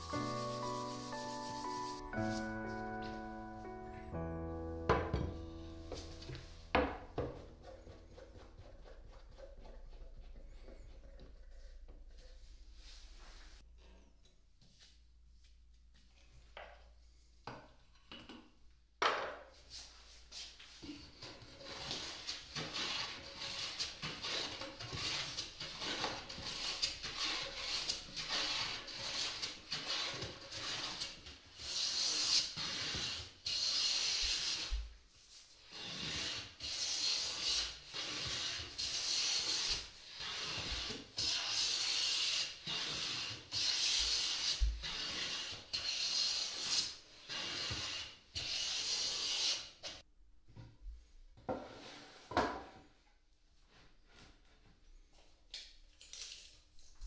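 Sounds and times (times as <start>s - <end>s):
hand plane shaving wood: 0.0s - 2.6s, 6.3s - 10.4s, 21.2s - 34.8s, 35.6s - 49.8s.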